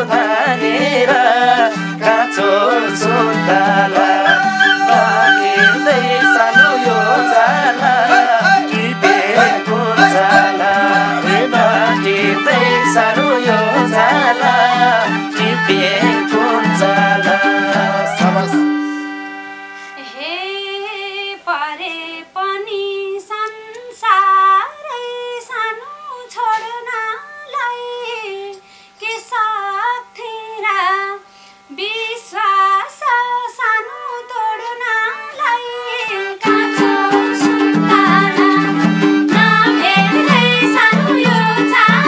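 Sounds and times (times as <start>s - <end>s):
folk band with hand drum: 0.0s - 19.5s, 36.0s - 42.0s
solo folk melody over drone: 0.0s - 20.2s, 34.0s - 42.0s.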